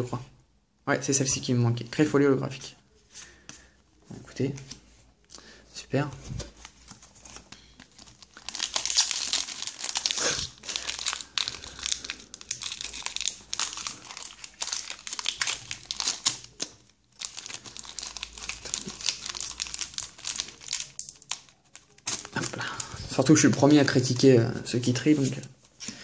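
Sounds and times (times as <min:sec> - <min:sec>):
foil wrapper crinkling and tearing: 0:07.2 - 0:24.4.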